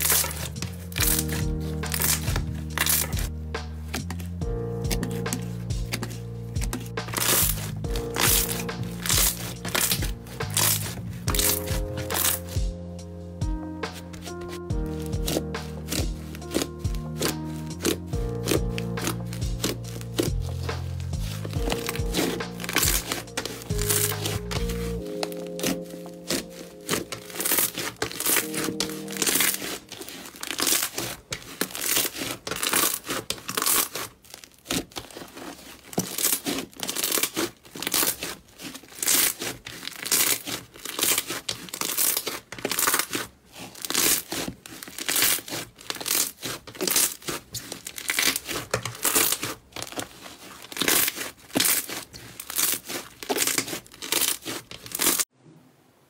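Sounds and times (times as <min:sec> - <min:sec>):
slime crackling and popping: 0:00.0 - 0:12.8, 0:13.8 - 0:55.3
soft musical tones: 0:00.0 - 0:30.6.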